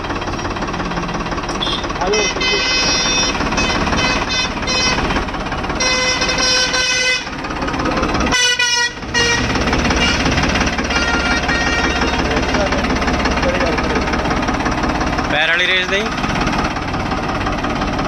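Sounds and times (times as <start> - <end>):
tractor diesel engine running: 0.0 - 18.0
loud horn held notes: 1.6 - 5.2, 5.8 - 7.3, 8.3 - 12.4.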